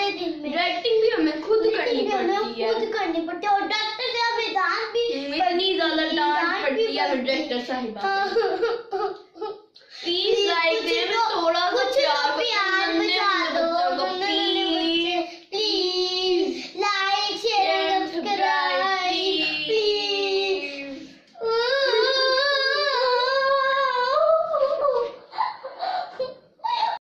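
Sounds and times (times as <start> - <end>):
girls singing unaccompanied: 10.0 - 25.7.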